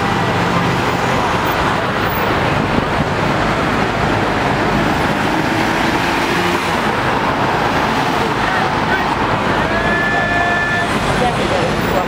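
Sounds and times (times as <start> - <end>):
cars passing close by: 0.0 - 12.0
vehicle engines running: 0.0 - 12.0.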